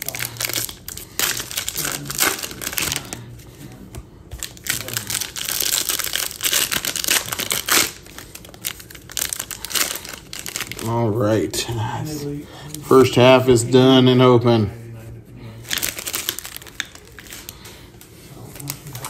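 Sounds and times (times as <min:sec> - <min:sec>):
foil wrappers crinkling and tearing: 0:00.0 - 0:03.4, 0:04.3 - 0:11.0, 0:15.6 - 0:19.0.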